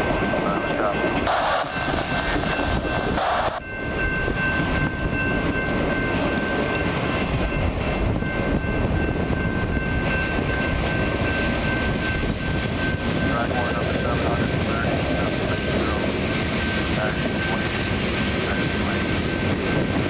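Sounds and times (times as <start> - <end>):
train wheels rumbling on rail: 0.0 - 20.0
wind buffeting microphone: 0.0 - 20.0
thin high whine: 0.6 - 4.5
hiss: 3.2 - 3.6.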